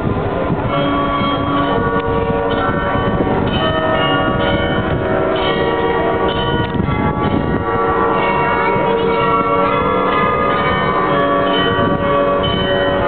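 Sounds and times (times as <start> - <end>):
carillon bells playing a tune: 0.1 - 13.0.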